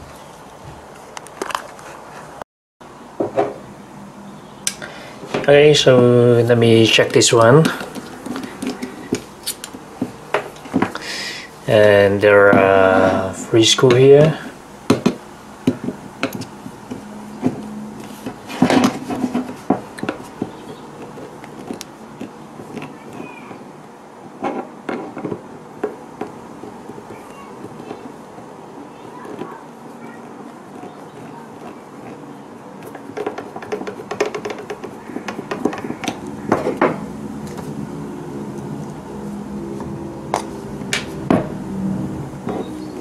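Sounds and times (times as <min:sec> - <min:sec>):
metal scraping on plastic: 0:05.2 - 0:11.0, 0:11.7 - 0:43.0
screwdriver clicking and scraping: 0:15.9 - 0:23.4, 0:30.2 - 0:36.8.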